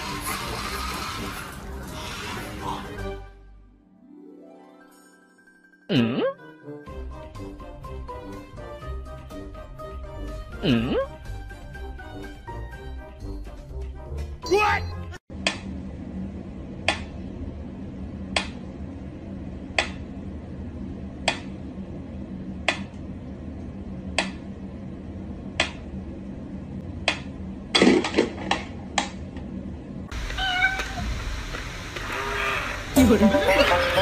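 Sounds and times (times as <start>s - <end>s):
cat meowing: 30.3s - 31.1s.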